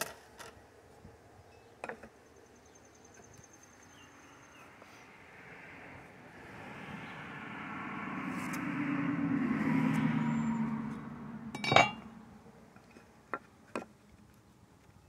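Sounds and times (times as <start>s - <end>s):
vehicle engine passing: 5.2s - 12.8s
metal clink on wood: 11.6s - 12.0s.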